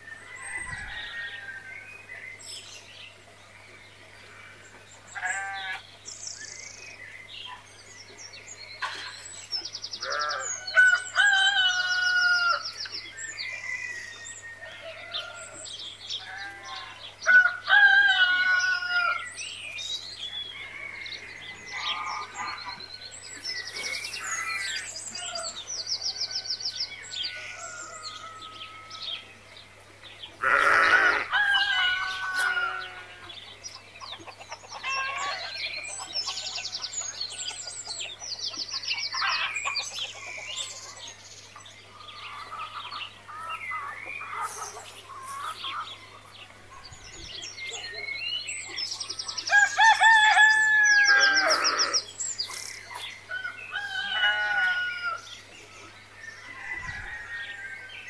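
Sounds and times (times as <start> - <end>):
small birds calling: 3.1 - 17.2, 18.5 - 57.8
rooster crowing: 10.0 - 12.7, 16.7 - 19.3, 30.4 - 33.2, 49.4 - 52.0, 53.4 - 55.2
chickens clucking: 31.3 - 41.1, 41.9 - 48.0.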